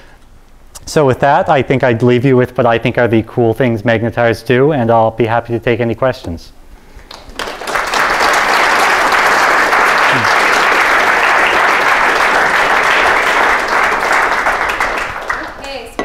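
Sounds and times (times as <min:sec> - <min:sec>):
audience applauding: 0:07.1 - 0:15.8.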